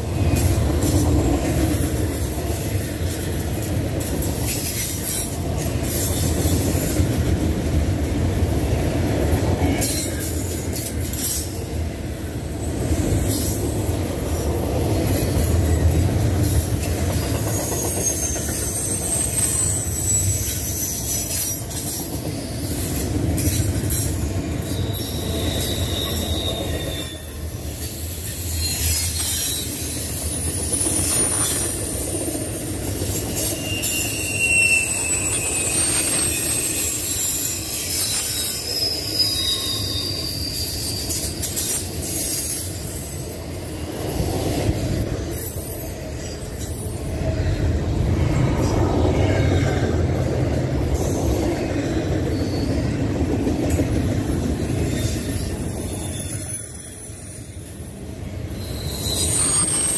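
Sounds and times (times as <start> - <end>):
train wheels rumbling on rails: 0.0 - 59.9
high-pitched wheel squeal: 17.1 - 24.0, 24.6 - 47.5, 52.2 - 53.0, 54.5 - 59.9.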